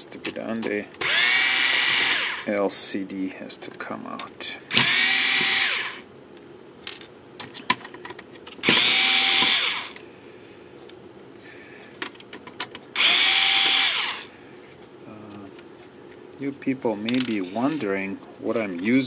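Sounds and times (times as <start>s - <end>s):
electric screwdriver motor whirring: 1.0s - 2.5s, 4.7s - 6.0s, 8.6s - 10.0s, 13.0s - 14.3s.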